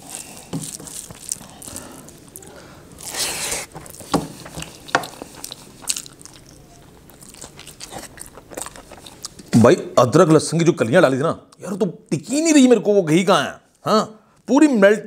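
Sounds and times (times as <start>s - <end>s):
fingers mixing food on plate: 0.0s - 9.6s
chewing with wet smacks: 0.1s - 9.6s
breathy hiss: 1.4s - 4.4s.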